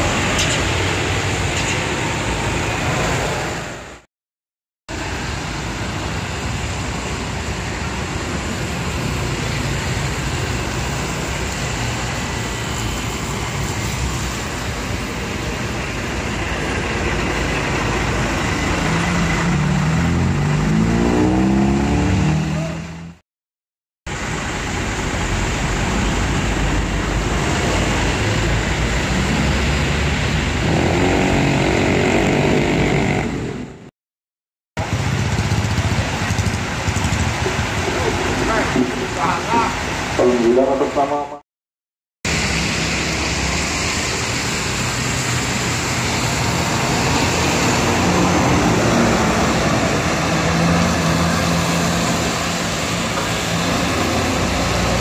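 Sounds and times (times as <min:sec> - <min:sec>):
tyres hissing on wet road: 0:00.0 - 0:04.0, 0:04.9 - 0:22.6, 0:24.1 - 0:33.5, 0:34.8 - 0:41.2, 0:42.3 - 0:55.0
bus engine accelerating: 0:07.9 - 0:23.2, 0:42.3 - 0:55.0.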